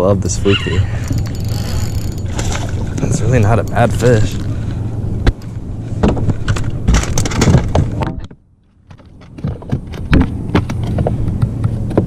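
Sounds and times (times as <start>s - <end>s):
steady low rumble: 0.0s - 12.0s
knocks and rattles of handling: 5.3s - 12.0s.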